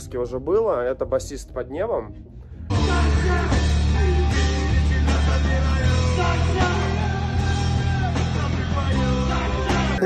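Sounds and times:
live rock band playing: 2.7 - 10.0
man singing into a microphone: 2.8 - 10.0.

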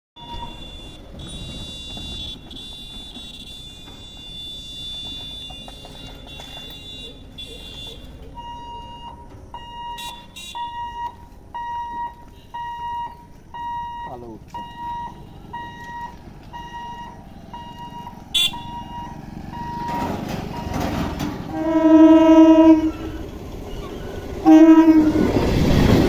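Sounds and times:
level crossing beeping: 0.2 - 1.1
level crossing warning tone: 0.2 - 26.0.

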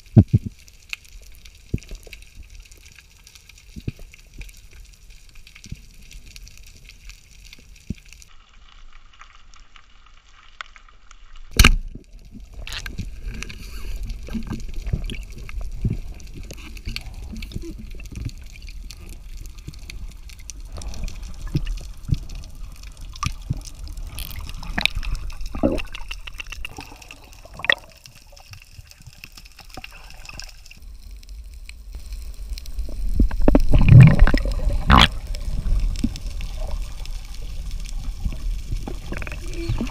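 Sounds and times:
underwater bubbling: 11.5 - 39.9.

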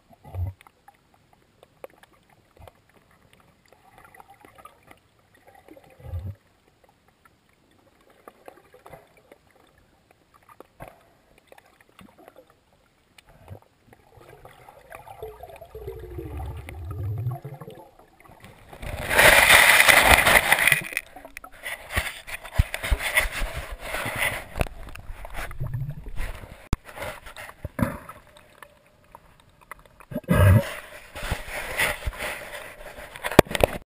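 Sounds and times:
faint underwater clicks and crackles: 0.0 - 33.8
low rising underwater sound: 14.1 - 18.0
dense crackling: 15.3 - 28.4.

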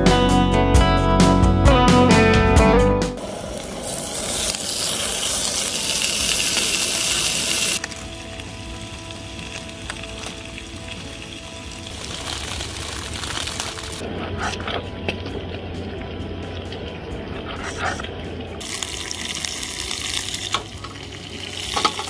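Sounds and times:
bacon sizzling in a skillet: 3.6 - 14.0, 18.6 - 22.0.

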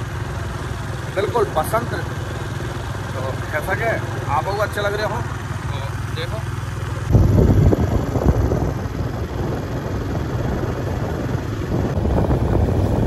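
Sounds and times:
motorcycle engine running: 0.0 - 13.0
wind buffeting microphone: 7.0 - 13.0.

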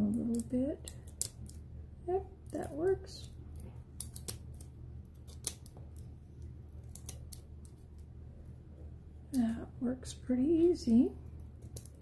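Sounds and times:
scissors snipping tape: 0.0 - 1.6, 2.4 - 6.1, 6.8 - 7.8, 11.6 - 12.0
low steady hum: 0.0 - 12.0.

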